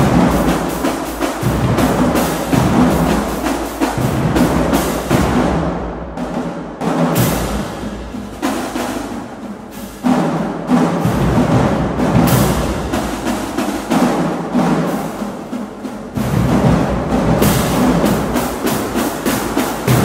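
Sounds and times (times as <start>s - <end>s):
marching bass drums: 0.0s - 20.0s
snare drums: 0.0s - 20.0s.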